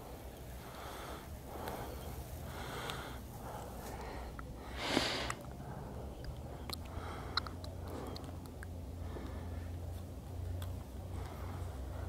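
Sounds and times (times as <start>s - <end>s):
person breathing and sniffing: 0.6s - 6.2s.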